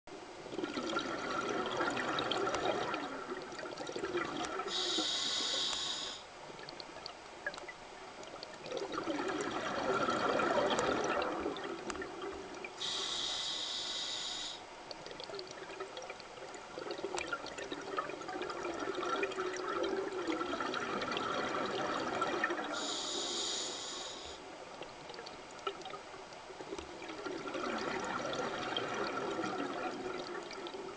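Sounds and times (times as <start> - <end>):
exhaled bubbles: 0.4 - 13.3, 14.9 - 30.9
regulator hissing inhalations: 4.7 - 6.3, 12.8 - 14.7, 22.7 - 24.4.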